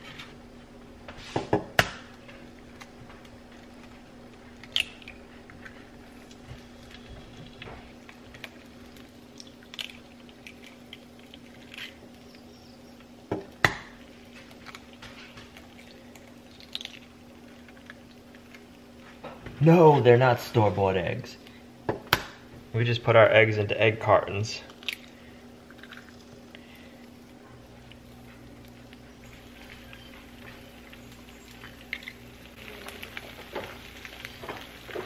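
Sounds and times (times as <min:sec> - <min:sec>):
griddle humming: 0:00.0 - 0:35.0
eggshells cracking: 0:02.7 - 0:19.2, 0:24.6 - 0:35.0.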